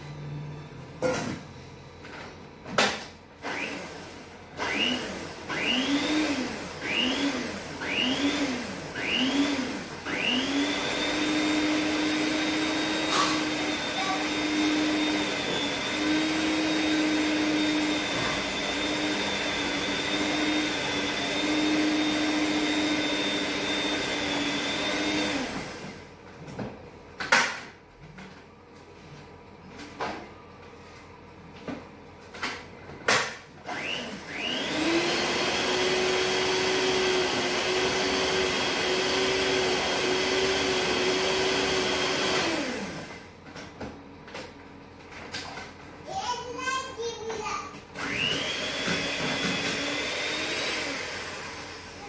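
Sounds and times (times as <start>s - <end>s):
electric hand mixer beating: 3.4s - 26.0s, 33.7s - 43.3s, 48.0s - 52.0s.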